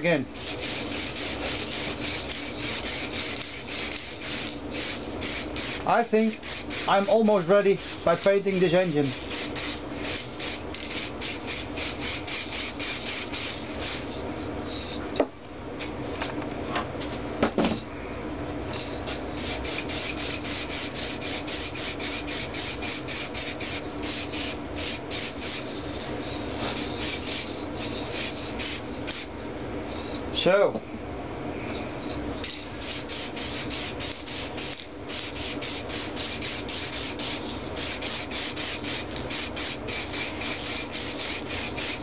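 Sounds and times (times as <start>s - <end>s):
spray-paint can hissing: 0.4s - 6.9s, 9.2s - 15.0s, 18.8s - 29.3s, 32.4s - 42.0s.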